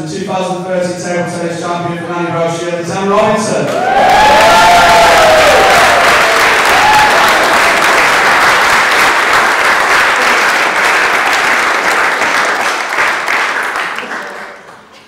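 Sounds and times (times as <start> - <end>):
person whooping: 3.7 - 7.5
cheering: 3.7 - 14.3
crowd applauding: 3.7 - 15.0.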